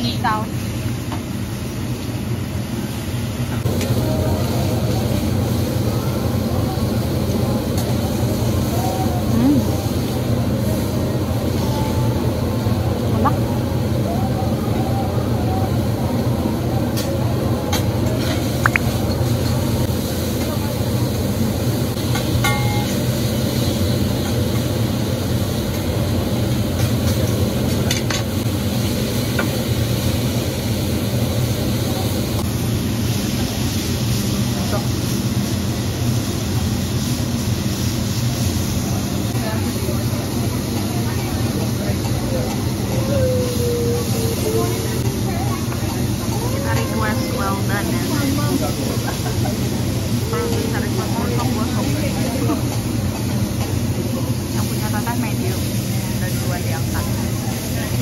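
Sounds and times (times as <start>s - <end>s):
exhaust hood ventilation rumble: 23.0s - 58.0s.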